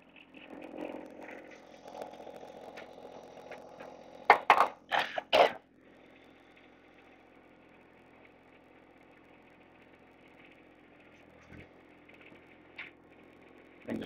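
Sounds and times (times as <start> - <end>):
diesel engine humming: 0.0 - 14.0
man coughing: 4.9 - 5.6.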